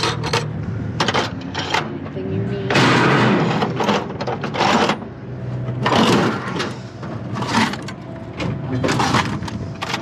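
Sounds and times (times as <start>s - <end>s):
metal tools clattering in toolbox: 0.0s - 1.9s, 8.7s - 10.0s.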